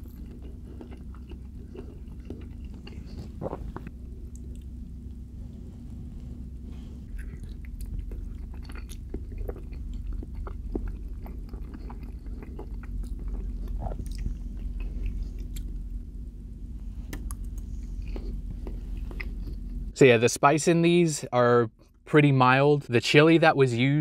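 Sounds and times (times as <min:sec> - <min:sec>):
close-miked chewing: 0:00.0 - 0:05.2, 0:07.0 - 0:16.0, 0:17.1 - 0:19.9
steady low hum: 0:00.0 - 0:24.0.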